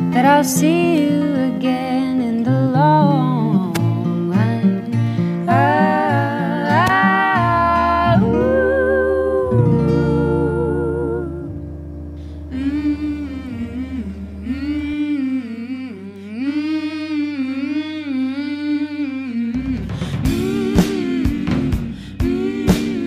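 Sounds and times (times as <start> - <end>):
women humming in harmony: 5.4 - 11.7, 12.4 - 23.0
sustained low drone: 9.4 - 16.0
drum hits: 19.7 - 23.0.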